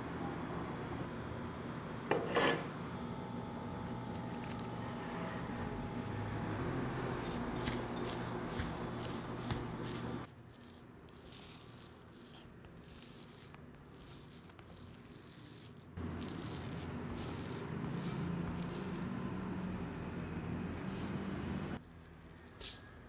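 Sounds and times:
spatula scraping dough in glass bowl: 7.0 - 19.2.

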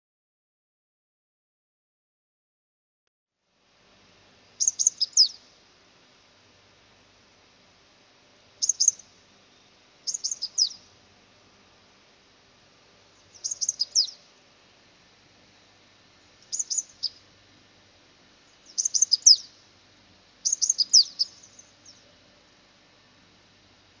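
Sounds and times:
sunbird twittering: 4.5 - 5.5, 8.6 - 10.9, 13.1 - 14.3, 16.4 - 17.2, 18.5 - 19.6, 20.4 - 22.1.

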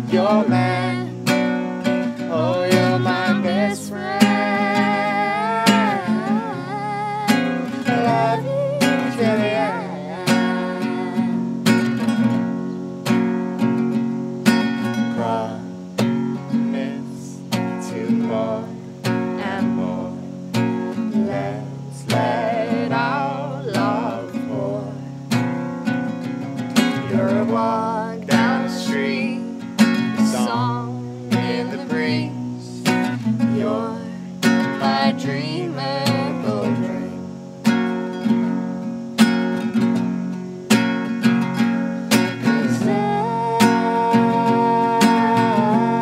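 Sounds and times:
woman singing: 0.0 - 12.0, 15.0 - 15.7, 16.6 - 25.0, 26.8 - 37.3, 42.2 - 46.0
acoustic guitar strummed: 0.0 - 46.0.

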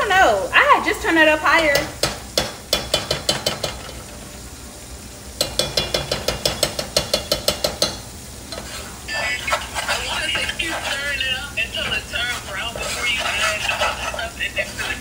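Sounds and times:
faint sizzle: 0.0 - 15.0
metal utensil clinking in saucepan: 5.4 - 8.7.

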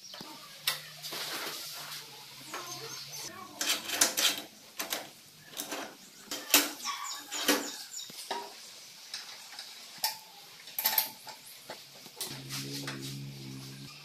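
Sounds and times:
metal tools clinking on steel: 10.8 - 11.5.

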